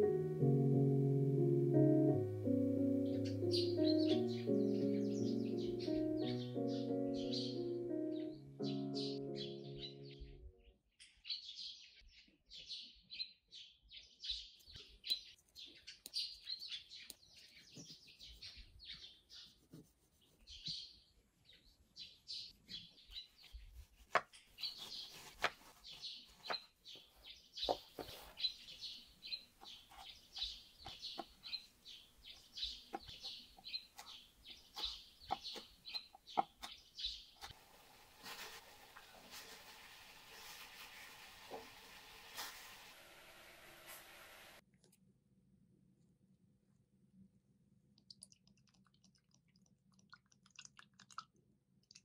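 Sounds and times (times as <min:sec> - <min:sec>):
small birds chirping: 0:02.7 - 0:37.6.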